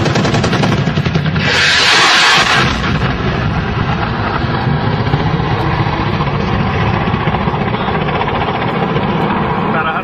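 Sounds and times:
gunfire burst: 0.0 - 4.2
helicopter engine and rotors: 0.0 - 10.0.

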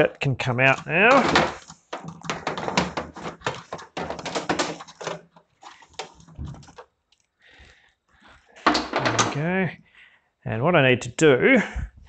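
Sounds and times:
charging plug clicking and rattling: 0.7 - 5.3.

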